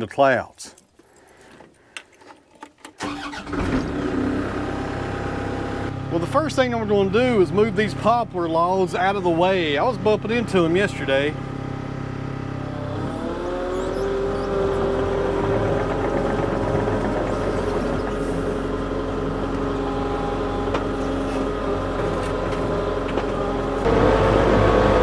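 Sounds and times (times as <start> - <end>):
diesel engine revving: 3.0 - 25.0.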